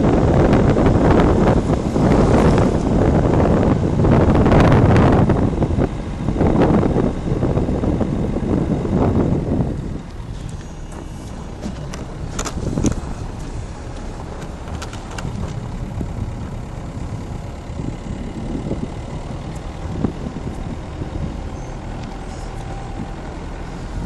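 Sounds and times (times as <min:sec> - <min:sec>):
tyres on snow: 0:00.0 - 0:04.4, 0:09.5 - 0:24.0
car engine rumble: 0:00.0 - 0:24.0.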